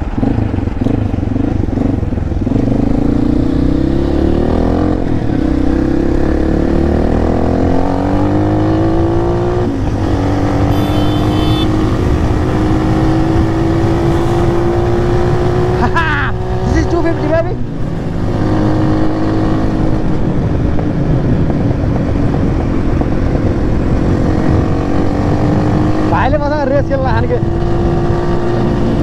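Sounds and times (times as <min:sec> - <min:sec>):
dirt bike engine accelerating: 0:10.0 - 0:16.9.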